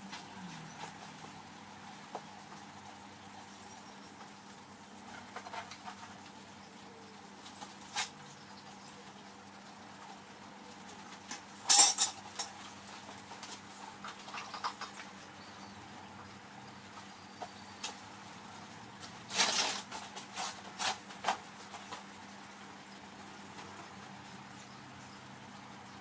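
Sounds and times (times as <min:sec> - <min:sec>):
metal tongs clanking: 0:11.7 - 0:12.5.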